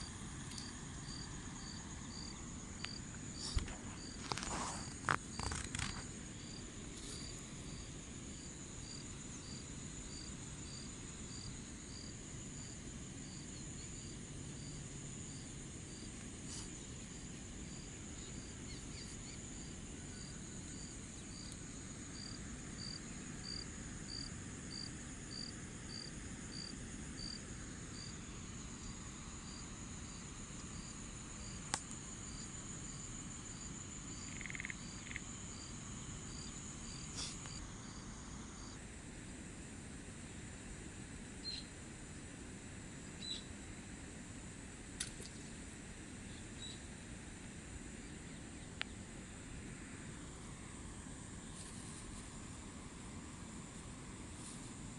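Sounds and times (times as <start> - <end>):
insect chirping rhythmically: 0.0 - 39.2, 39.8 - 51.6
insect chorus trilling: 0.0 - 54.9
sharp click: 45.0 - 45.4.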